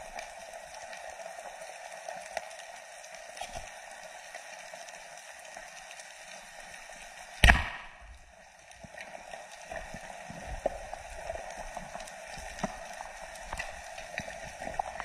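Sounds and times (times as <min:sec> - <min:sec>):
speargun crack underwater: 0:07.4 - 0:08.2.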